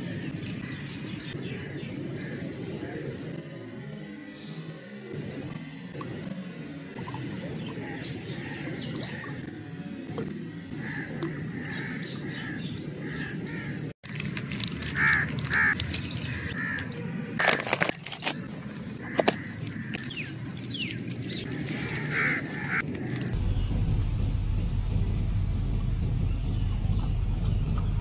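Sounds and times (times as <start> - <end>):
crows cawing: 10.7 - 13.9, 14.6 - 17.7, 18.9 - 23.4
plastic wrapper crackling: 14.0 - 23.4.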